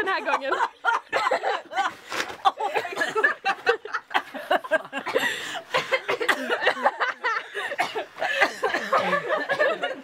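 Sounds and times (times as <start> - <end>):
people talking: 0.0 - 1.9, 2.5 - 3.6, 8.7 - 10.0
people laughing: 0.0 - 10.0.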